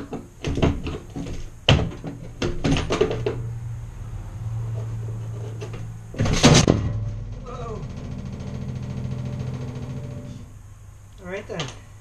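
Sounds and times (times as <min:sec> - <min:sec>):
metal panel clicks and knocks: 0:00.0 - 0:03.5, 0:05.6 - 0:07.4
low steady hum: 0:00.0 - 0:12.0
loud metal clunk: 0:05.7 - 0:10.5.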